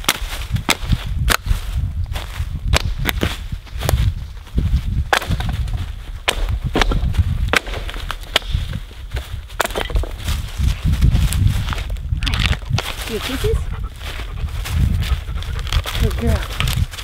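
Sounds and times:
twigs snapping: 0.0s - 4.2s, 5.0s - 10.5s, 11.1s - 13.4s, 15.0s - 17.0s
footsteps crunching dry leaves: 0.0s - 17.0s
dog trotting through leaves: 13.0s - 17.0s.

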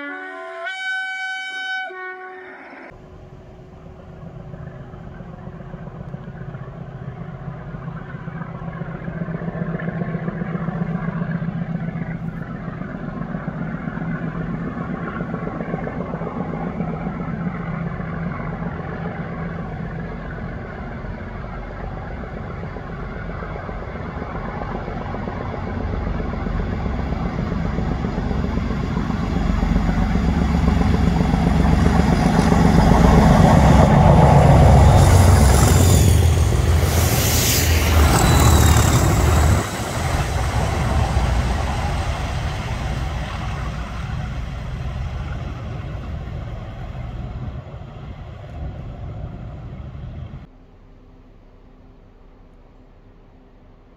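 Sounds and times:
diesel locomotive engine: 0.0s - 53.9s
loud hissing: 34.6s - 47.2s.

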